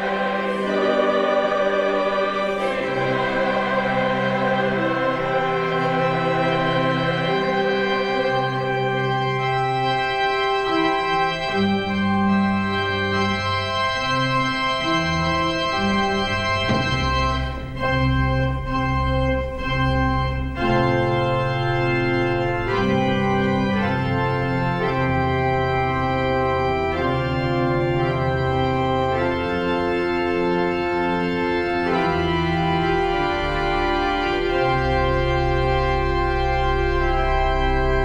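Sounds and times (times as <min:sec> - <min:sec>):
organ playing slow chords: 0:00.0 - 0:38.0.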